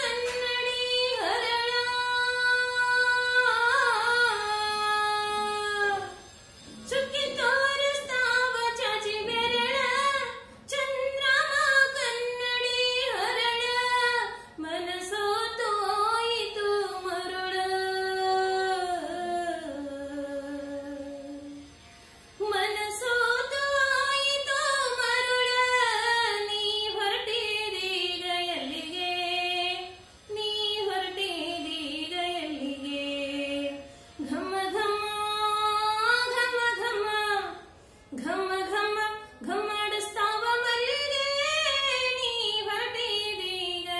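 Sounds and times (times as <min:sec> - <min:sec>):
singer breathing: 0:37.7 - 0:38.2.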